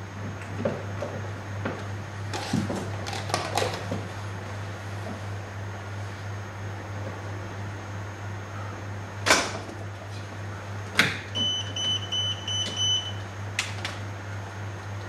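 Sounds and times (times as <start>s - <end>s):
steady low hum: 0.0s - 15.0s
electrical tester beeps: 11.3s - 13.3s.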